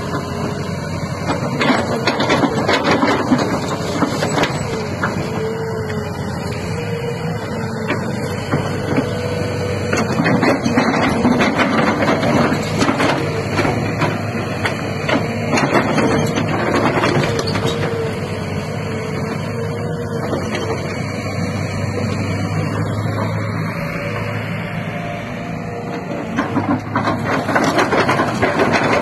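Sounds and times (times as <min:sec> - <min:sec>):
excavator diesel engine running: 0:00.0 - 0:29.0
soil and stones clattering: 0:26.2 - 0:29.0.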